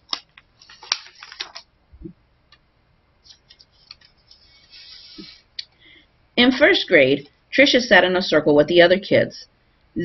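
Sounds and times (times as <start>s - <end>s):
book pages rustling: 0.0s - 1.7s, 3.2s - 5.4s.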